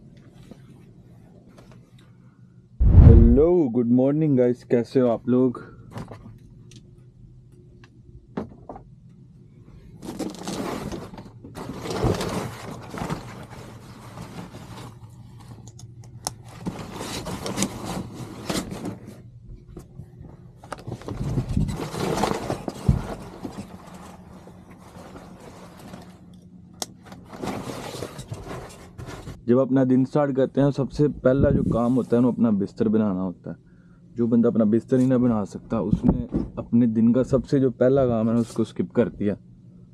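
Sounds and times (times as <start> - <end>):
steady low hum: 0.0 - 10.2, 11.0 - 39.9
sharp knock: 2.8 - 3.5
fabric curtains sliding and rustling: 10.0 - 15.0, 21.2 - 26.2, 27.2 - 29.4.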